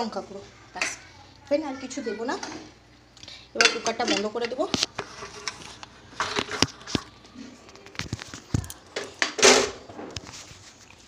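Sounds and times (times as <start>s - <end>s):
metal lid scrape: 3.8s - 7.6s.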